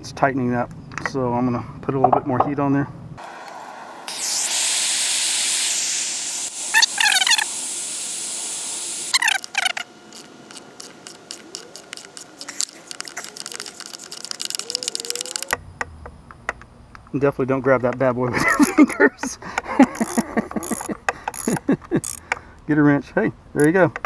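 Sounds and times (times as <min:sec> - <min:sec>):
gas torch hissing: 0:03.2 - 0:15.6, 0:19.8 - 0:22.2
ratchet wrench clicking: 0:09.2 - 0:15.6, 0:19.9 - 0:22.4.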